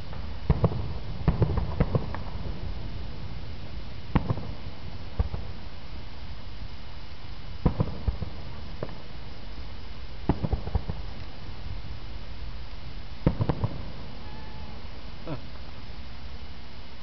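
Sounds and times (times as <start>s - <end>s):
distant fireworks bangs: 0.0s - 6.1s, 7.6s - 9.5s, 10.2s - 12.1s, 13.1s - 15.7s
steady low rumble: 0.0s - 17.0s.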